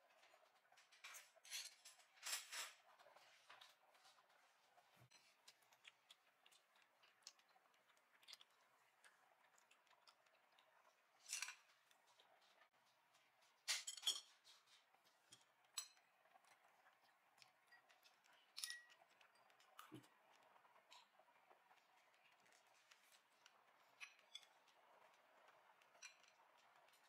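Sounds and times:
cutlery clinking on plates: 0.9 - 2.8, 13.7 - 14.7.

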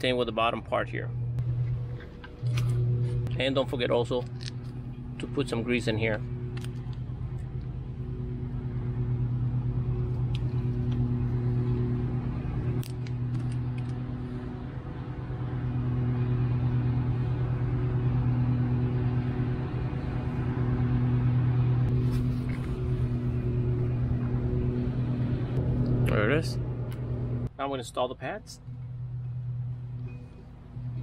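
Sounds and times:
low engine drone: 0.0 - 31.0.

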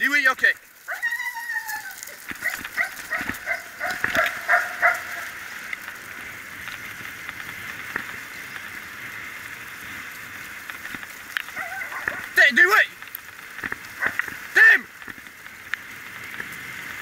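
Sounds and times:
rushing noise of sled run: 0.0 - 17.0
dogs yipping and barking: 0.8 - 5.5, 11.4 - 12.4, 13.9 - 14.3.

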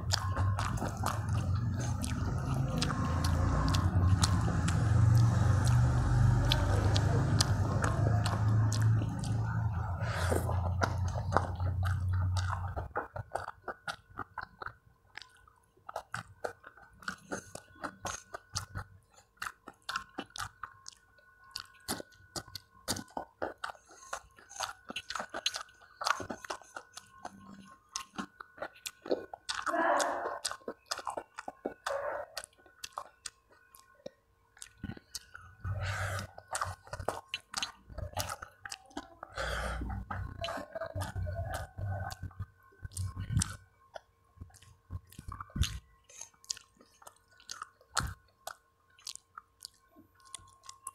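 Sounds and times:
clicking mouth sounds: 0.0 - 50.9
wet chewing and lip-smacking: 0.0 - 50.9.

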